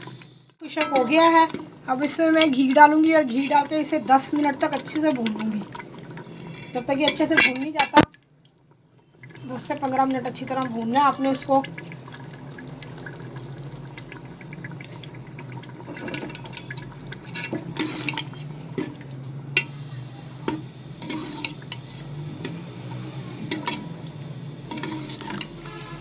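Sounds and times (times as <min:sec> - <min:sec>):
steel spoon stirring and scraping pot: 0:00.7 - 0:05.4, 0:06.2 - 0:07.9, 0:15.8 - 0:19.0, 0:20.5 - 0:24.0, 0:24.7 - 0:26.0
liquid pouring into a pot: 0:03.2 - 0:07.3, 0:08.0 - 0:25.9.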